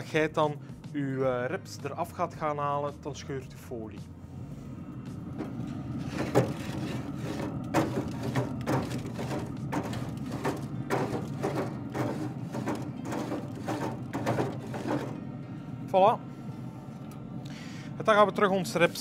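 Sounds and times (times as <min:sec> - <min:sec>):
steady low hum: 0:00.0 - 0:19.0
grill grate being scraped: 0:05.4 - 0:15.2.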